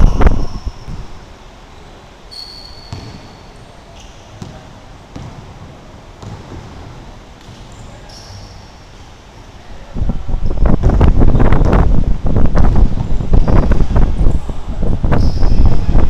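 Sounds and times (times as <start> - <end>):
sneakers squeaking on wooden floor: 1.8 - 8.7.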